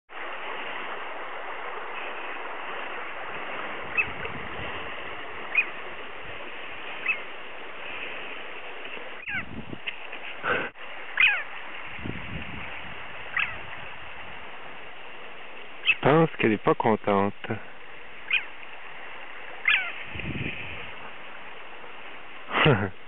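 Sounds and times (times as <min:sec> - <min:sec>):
steady hiss: 0:00.1 - 0:23.0
tern alarm calls: 0:03.8 - 0:04.3, 0:05.2 - 0:06.0, 0:06.8 - 0:07.5, 0:09.0 - 0:09.5, 0:11.1 - 0:11.6, 0:13.2 - 0:14.0, 0:15.8 - 0:16.2, 0:18.1 - 0:18.7, 0:19.5 - 0:20.2.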